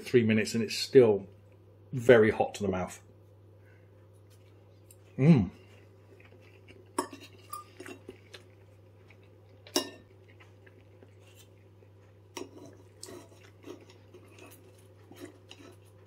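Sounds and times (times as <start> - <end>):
knife and fork clinking on plate: 7.0 - 8.1, 9.7 - 10.1.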